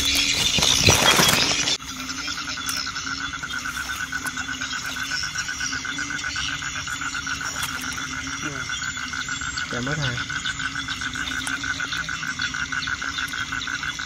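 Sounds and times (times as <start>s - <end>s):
frogs calling: 0.0s - 14.0s.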